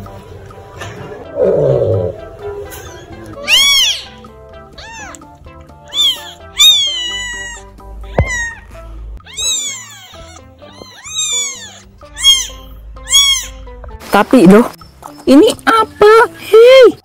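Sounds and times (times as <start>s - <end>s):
background music: 0.0s - 17.0s
kitten mewing: 2.8s - 4.2s, 4.8s - 5.3s, 5.9s - 8.6s, 9.2s - 13.6s.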